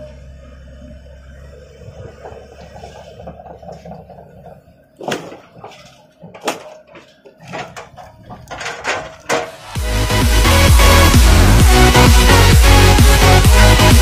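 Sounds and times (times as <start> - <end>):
excavator diesel engine hum: 0.0 - 14.0.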